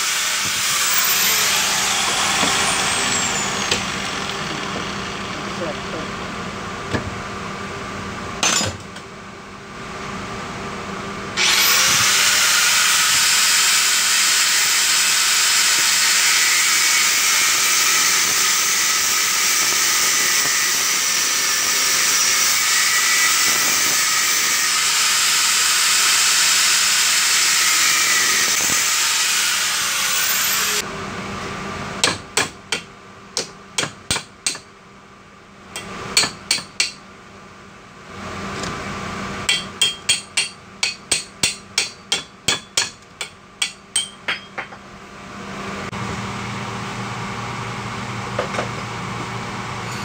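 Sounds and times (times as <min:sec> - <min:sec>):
angle grinder cutting metal: 0:00.0 - 0:06.2, 0:11.4 - 0:30.8.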